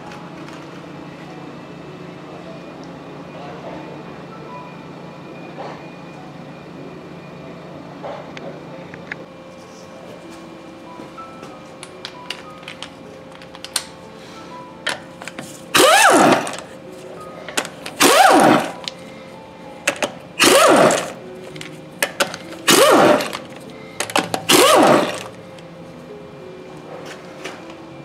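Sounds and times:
impact wrench bursts: 15.7 - 16.7, 17.6 - 18.9, 19.9 - 21.2, 22.0 - 25.4.

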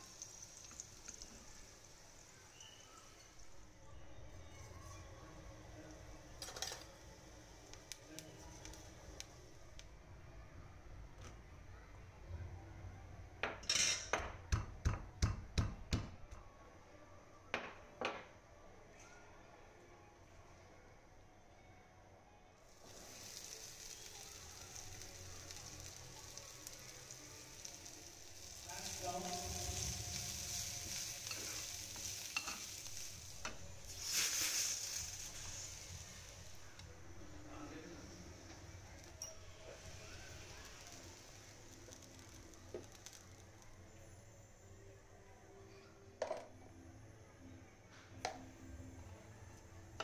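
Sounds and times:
garlic sizzling in hot oil: 0.0 - 9.8, 22.6 - 44.6.

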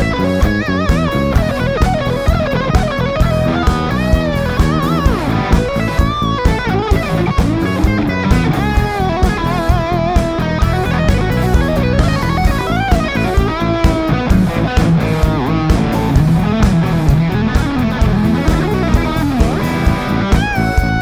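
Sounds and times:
bass guitar: 0.0 - 21.0
bending lead guitar melody: 0.0 - 21.0
drum kit beat: 0.0 - 21.0
electric guitar: 0.0 - 21.0.

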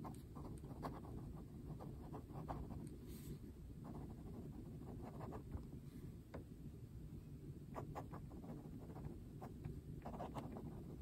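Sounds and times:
fountain pen scratching on paper: 0.0 - 2.8, 3.8 - 5.5, 7.8 - 9.2, 10.0 - 11.0.

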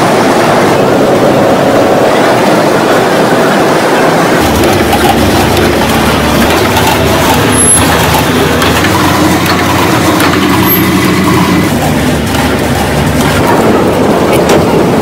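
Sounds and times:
low machine hum: 4.4 - 15.0.

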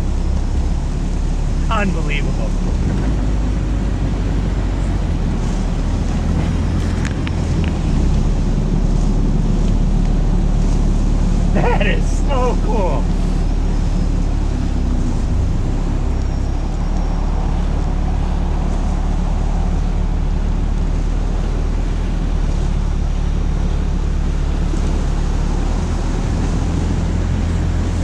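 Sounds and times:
diesel engine drone: 0.0 - 28.0.

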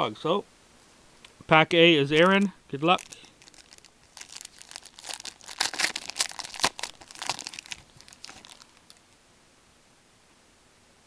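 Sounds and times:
wrapper tearing and crinkling: 2.0 - 9.1.

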